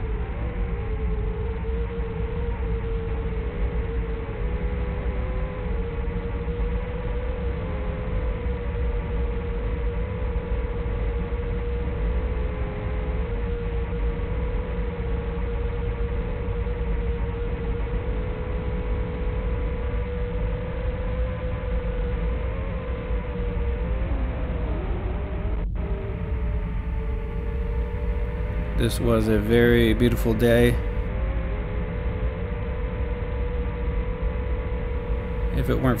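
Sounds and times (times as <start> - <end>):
drone motors whining: 20.8 - 33.2, 33.8 - 36.0
wind rumble: 25.3 - 31.1, 34.6 - 36.0.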